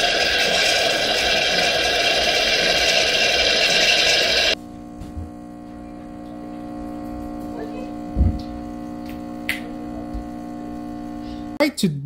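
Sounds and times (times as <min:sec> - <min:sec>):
espresso machine hissing: 0:00.0 - 0:04.6
pump humming: 0:00.0 - 0:11.6.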